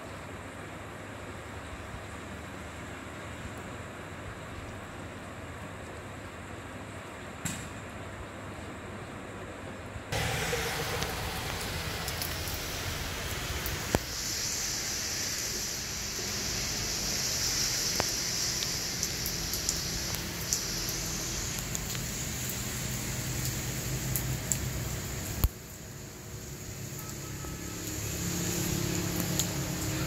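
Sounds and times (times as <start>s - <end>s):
steady rainfall: 10.1s - 30.0s.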